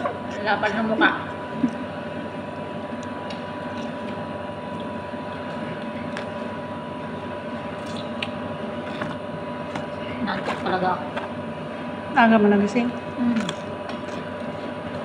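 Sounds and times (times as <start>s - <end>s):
people eating fried food: 0.0s - 6.7s, 13.0s - 14.8s
appliance electrical hum: 0.0s - 15.0s.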